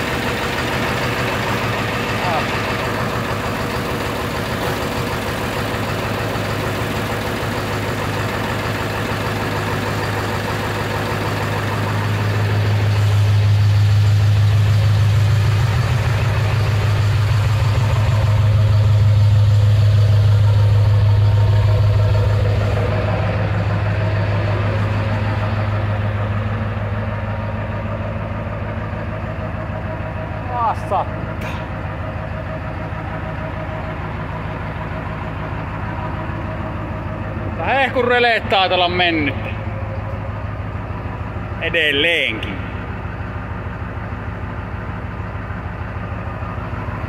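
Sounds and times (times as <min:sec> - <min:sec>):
diesel engine idling: 0:00.0 - 0:47.0.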